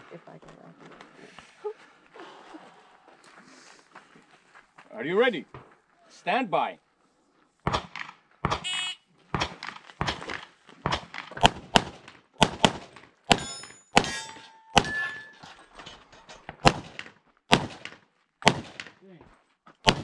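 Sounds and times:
pistol shots: 7.7s - 15.2s, 16.6s - 18.9s
steel target ringing: 13.3s - 15.4s.

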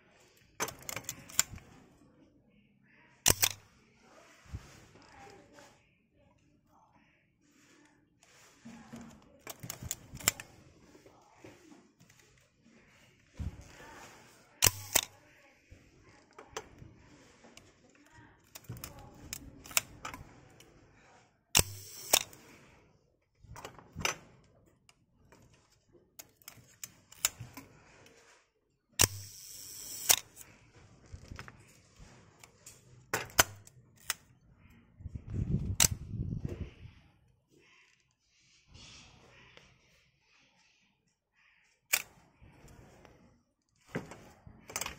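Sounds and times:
camera handling clicks: 3.3s - 3.6s, 14.6s - 15.1s
camera shutter clicking: 3.3s - 3.6s, 14.6s - 15.1s, 21.6s - 22.4s, 29.0s - 30.3s.

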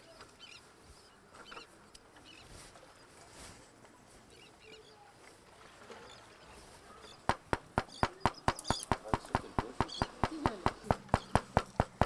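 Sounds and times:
faint bird chirps: 4.3s - 5.2s.

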